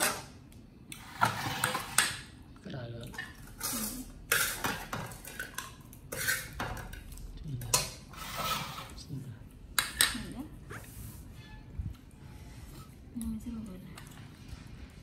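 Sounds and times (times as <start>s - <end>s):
kitchen utensils clinking and scraping: 1.0s - 2.2s, 3.1s - 7.0s, 7.6s - 9.0s.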